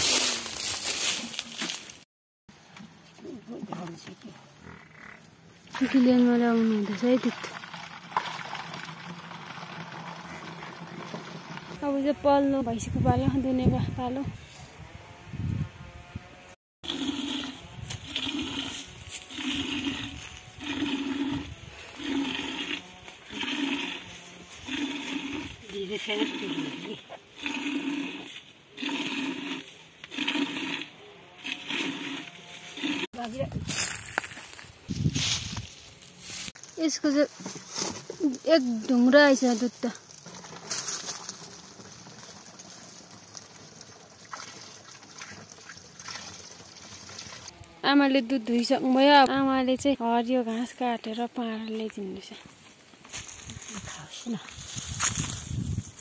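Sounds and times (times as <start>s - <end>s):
milk trickling into container: 6.6s - 11.8s, 40.3s - 47.5s
milk squirting into vessel: 6.7s - 11.8s.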